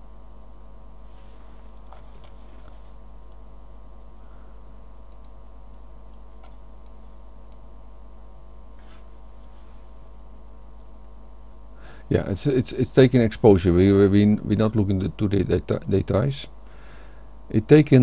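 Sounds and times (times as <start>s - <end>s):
electrical hum: 0.0s - 18.0s
computer mouse clicks: 5.1s - 5.4s.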